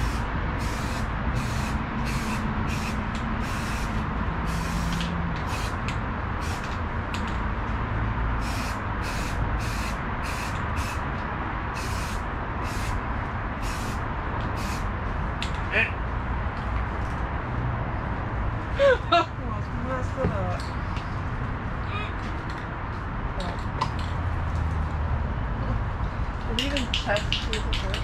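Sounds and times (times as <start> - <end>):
spray can hissing bursts: 0.0 - 5.8, 6.4 - 6.8, 8.4 - 11.0, 11.7 - 13.0, 13.6 - 14.9
steady background rush: 0.0 - 28.0.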